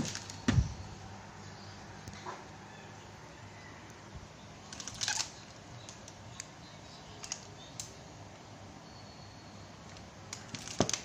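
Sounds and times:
clicks and crinkles of wrapping: 0.0 - 0.6, 4.7 - 6.5, 7.2 - 7.9, 9.9 - 11.0
dull thump: 0.0 - 0.8.

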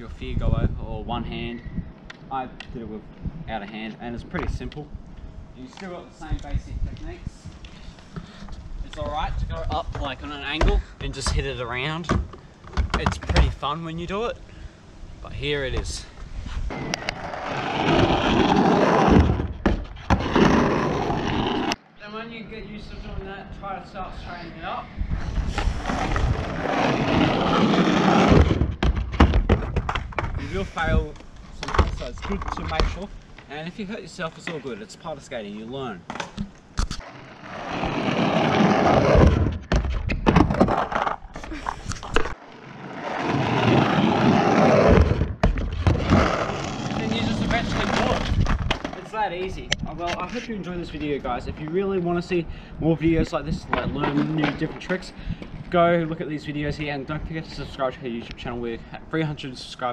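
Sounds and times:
skateboard wheels rolling on asphalt: 15.8 - 21.9, 25.0 - 33.5, 37.0 - 52.3, 53.1 - 58.5.

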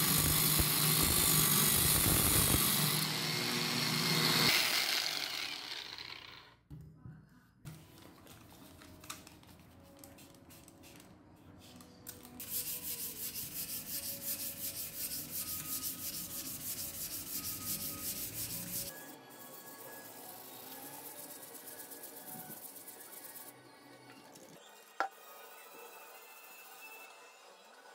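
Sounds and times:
soft background music: 6.8 - 27.9
sandpaper rubbing on metal: 12.4 - 23.5.

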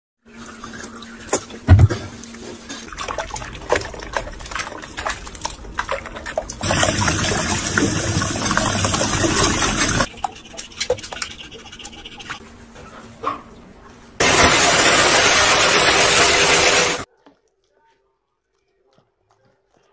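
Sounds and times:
tap water running into sink: 3.0 - 10.1.

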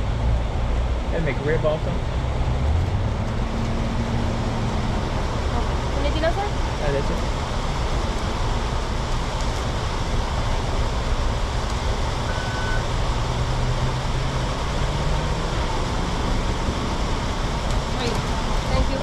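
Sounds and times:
car engine idling: 0.0 - 19.0
road traffic: 0.0 - 19.0
short high beep: 12.3 - 12.9.

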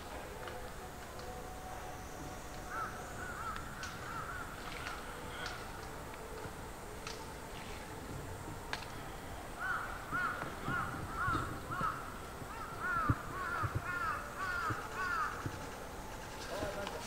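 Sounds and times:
crow cawing: 2.7 - 5.7, 9.6 - 15.6.

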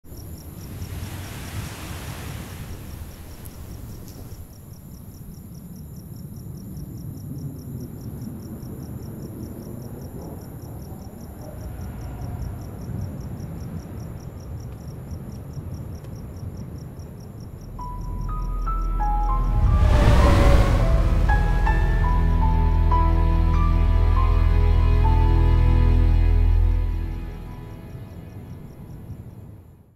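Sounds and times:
crickets chirping: 0.0 - 29.9
low rumble: 17.6 - 28.4
deep drone: 17.7 - 28.6
rising chime-like notes: 17.8 - 26.8.

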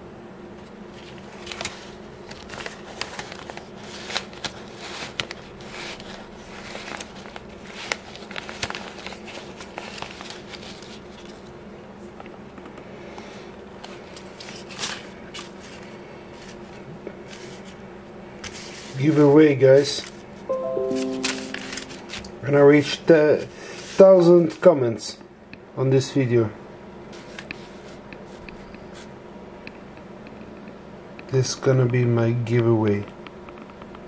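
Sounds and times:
banknotes rustling and snapping: 1.0 - 11.5, 13.8 - 16.6.

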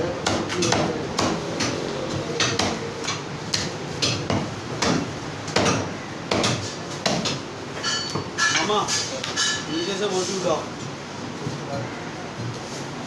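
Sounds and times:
cleaver chopping ribs on wooden block: 0.2 - 1.8, 2.4 - 7.4.

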